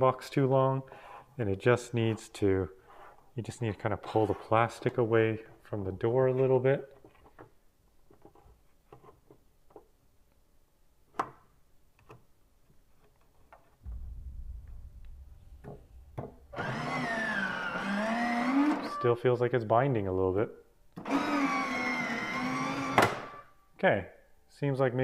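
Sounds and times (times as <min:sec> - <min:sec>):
low hum: 0:13.8 - 0:18.6.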